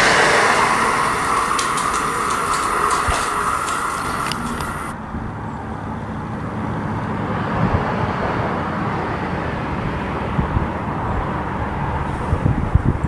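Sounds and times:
low outdoor rumble: 0.0s - 6.6s
train with clicking wheels: 0.0s - 13.0s.

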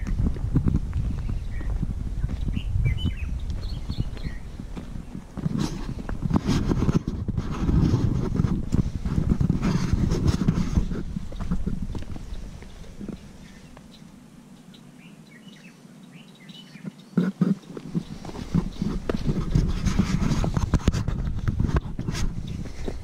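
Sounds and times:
footsteps on dirt trail: 0.0s - 14.2s, 17.2s - 23.0s
wind on microphone: 0.0s - 14.4s, 16.8s - 23.0s
faint bird chirps: 2.4s - 5.2s, 12.2s - 19.0s.

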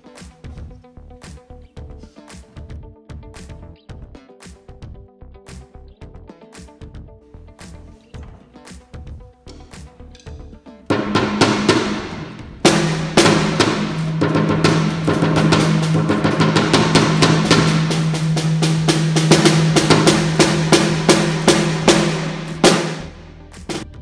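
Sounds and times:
damped drum toms struck with sticks: 10.9s - 24.0s
low drum tone: 10.9s - 24.0s.

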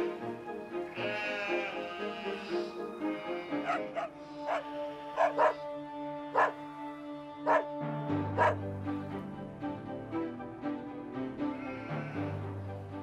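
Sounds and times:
background music with sustained notes: 0.0s - 13.0s
dog barking: 3.6s - 5.6s, 6.4s - 6.6s, 7.5s - 7.7s, 8.4s - 8.6s.

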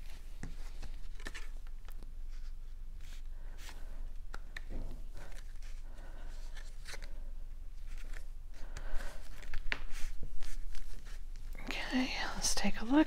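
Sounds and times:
soft paper clicks: 4.3s - 5.5s.

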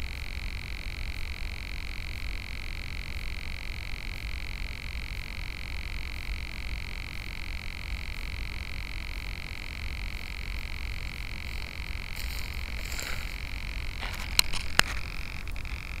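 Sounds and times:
microphone hiss and rumble: 0.0s - 16.0s
sharp clicks: 11.5s - 16.0s.

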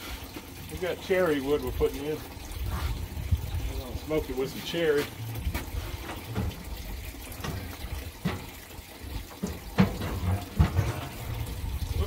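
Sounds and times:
steady low rumble: 2.4s - 4.4s, 10.6s - 12.0s
logs knocking on wood and metal: 5.1s - 8.7s, 9.3s - 11.6s.

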